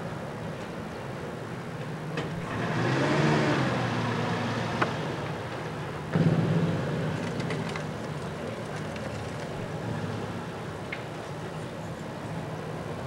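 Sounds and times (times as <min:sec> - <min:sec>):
loud vehicle engine: 0:02.2 - 0:10.7
vehicle engine passing: 0:02.4 - 0:05.2, 0:06.1 - 0:07.9.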